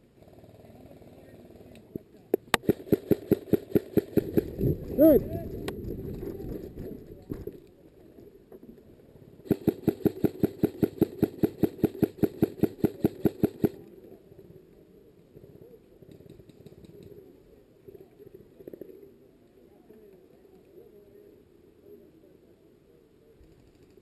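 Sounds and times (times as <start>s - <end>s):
airsoft rifle rapid fire: 2.4s - 5.1s, 9.4s - 13.8s.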